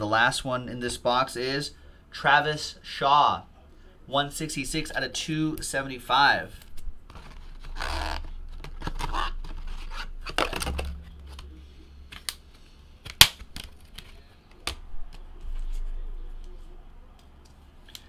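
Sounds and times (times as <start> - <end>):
packaging rustling and tearing: 6.6 - 11.5.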